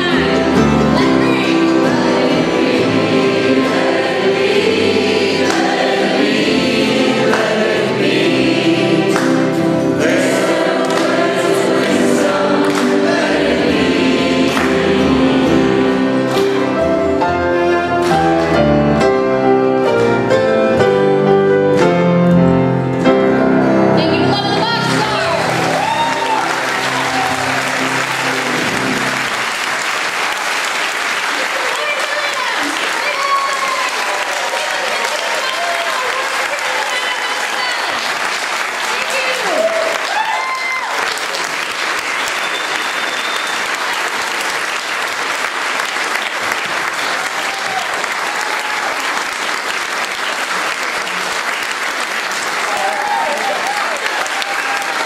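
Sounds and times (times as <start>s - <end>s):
crowd singing along: 0.0s - 18.0s
person singing lead vocals: 0.0s - 18.2s
audience applauding: 0.0s - 18.8s, 24.3s - 55.0s
acoustic guitar: 0.0s - 29.9s.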